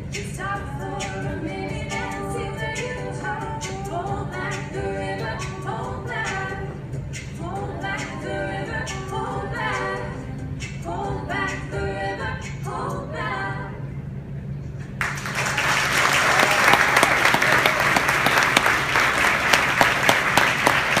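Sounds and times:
women's group singing a cappella: 0.0s - 14.0s
audience applause: 15.0s - 21.0s.

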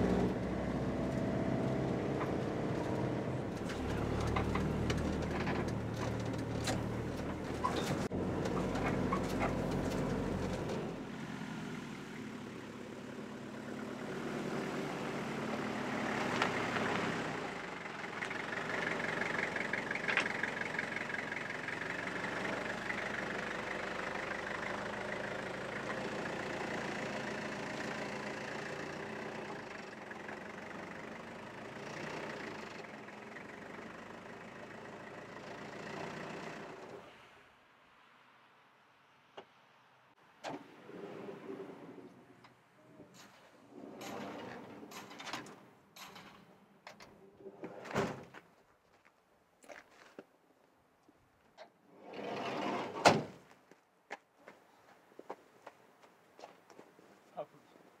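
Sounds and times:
van engine running: 0.0s - 37.0s.

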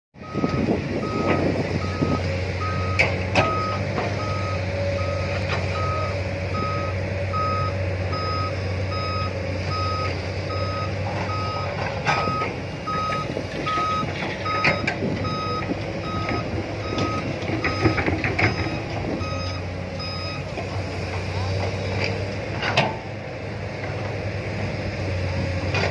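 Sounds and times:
warning alarm beeping: 0.2s - 20.5s
diesel engine under load: 0.2s - 25.9s.

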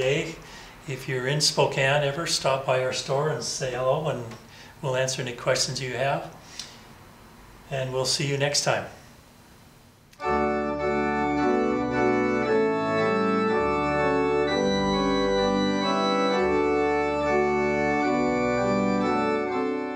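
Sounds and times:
organ playing sustained chords: 10.2s - 19.9s.

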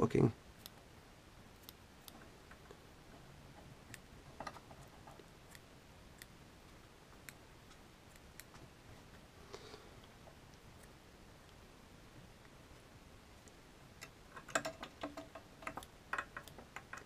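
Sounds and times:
small scissors snipping yarn: 1.6s - 2.2s, 8.0s - 8.5s.

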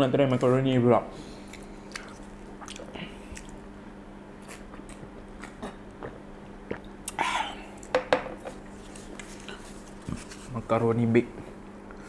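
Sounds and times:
person drinking and swallowing: 4.7s - 7.8s.

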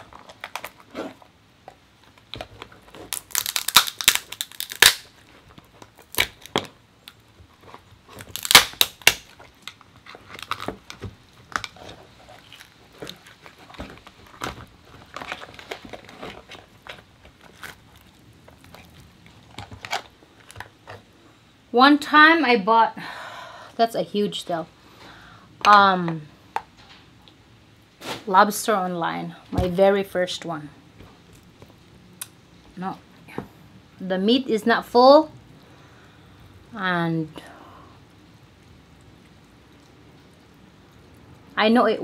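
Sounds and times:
lobster shell cracking and tearing: 0.0s - 20.8s.

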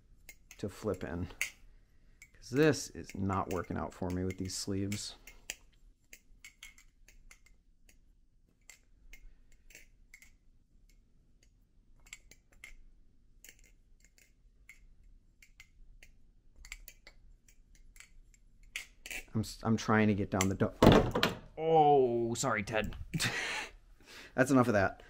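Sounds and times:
butterfly knife clicking: 2.2s - 8.0s, 8.6s - 12.8s, 13.4s - 19.3s.

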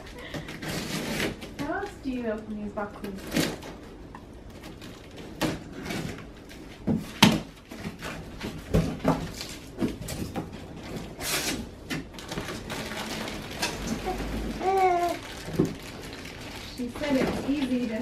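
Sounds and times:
cardboard rustle or rip: 0.5s - 1.8s, 4.5s - 18.0s
cardboard flaps knocked and scraped: 4.7s - 12.7s.

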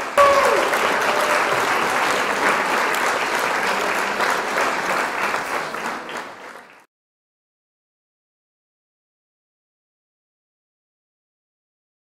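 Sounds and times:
crowd applauding: 0.0s - 6.9s.

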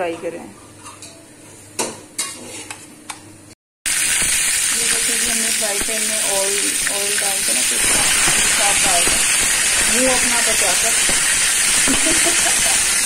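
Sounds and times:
meat sizzling in oil: 3.9s - 13.0s.

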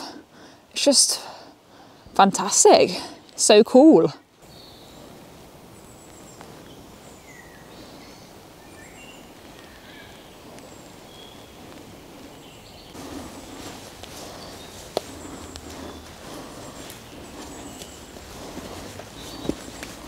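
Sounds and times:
low steady background: 0.0s - 20.0s
bird chirps: 4.4s - 5.1s, 5.7s - 20.0s
footsteps rustling through grass: 4.4s - 7.9s, 8.9s - 20.0s.

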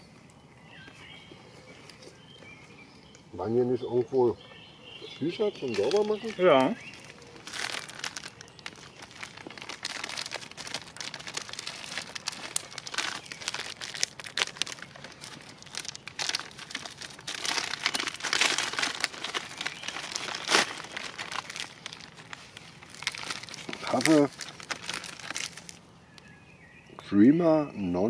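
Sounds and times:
plastic packet crinkling: 5.6s - 26.3s.

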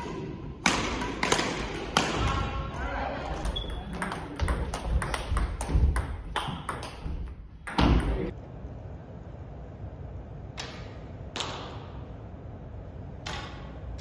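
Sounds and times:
rackets hitting shuttlecocks: 0.0s - 2.6s, 3.4s - 8.3s
table tennis balls clicking: 3.4s - 8.3s.

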